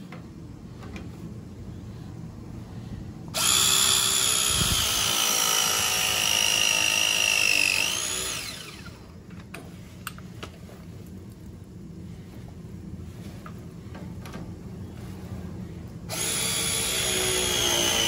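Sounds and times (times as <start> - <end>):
press tool motor whine: 3.4 - 9.1, 16.1 - 18.0.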